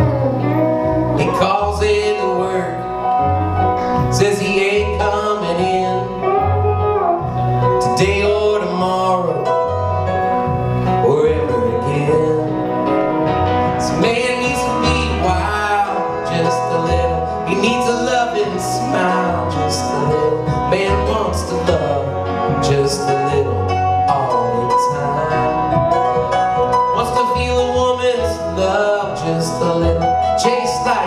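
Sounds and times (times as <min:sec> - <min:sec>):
live country folk band playing: 0:00.0 - 0:31.0.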